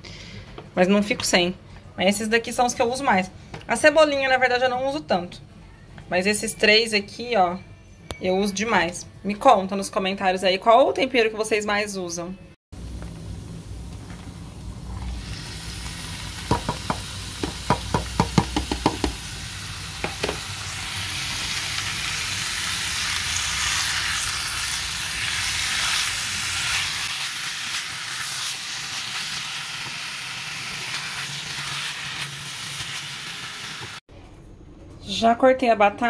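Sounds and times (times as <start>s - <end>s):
chicken sizzling in a frying pan: 12.8s - 34.0s
sharp knocks: 16.5s - 19.2s.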